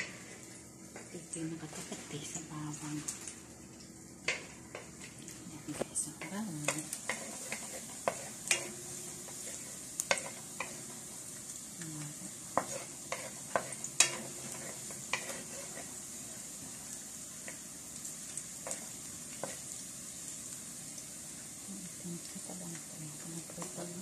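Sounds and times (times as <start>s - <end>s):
garlic sizzling in oil: 0.0s - 24.0s
spatula knocking and scraping pan: 5.7s - 11.1s, 12.5s - 16.0s, 18.6s - 19.6s.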